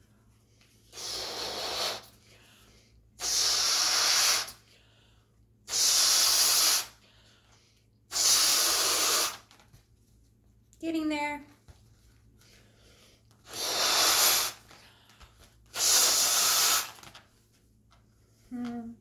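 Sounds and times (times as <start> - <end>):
breath blown into a balloon: 0.8 - 4.8, 5.6 - 7.3, 8.1 - 9.6, 12.7 - 14.9, 15.7 - 17.1.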